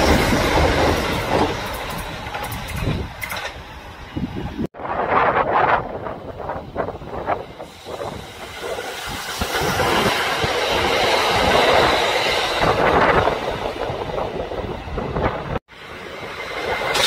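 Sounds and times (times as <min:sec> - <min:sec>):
wheels clicking over track: 0:00.0 - 0:03.8, 0:16.6 - 0:17.0
train wheel and rail noise: 0:00.0 - 0:17.0.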